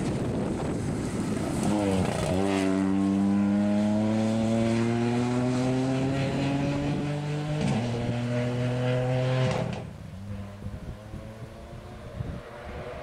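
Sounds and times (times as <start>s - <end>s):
rally car engine accelerating: 1.1s - 13.0s.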